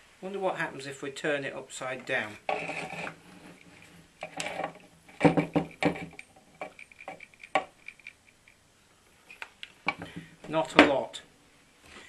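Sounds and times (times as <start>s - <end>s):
pump knocking on wooden bench: 5.2s - 6.2s.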